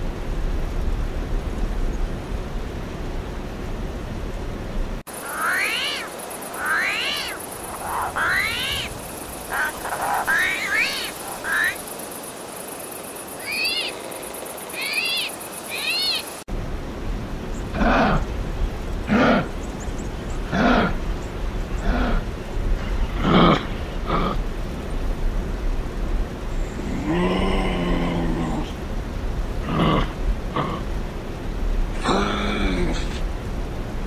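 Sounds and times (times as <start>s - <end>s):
high insect-like buzz: 5.1s - 16.5s
low grunts: 17.7s - 18.3s, 19.1s - 19.6s, 20.5s - 21.0s, 21.8s - 22.3s, 23.1s - 24.4s, 32.0s - 33.3s.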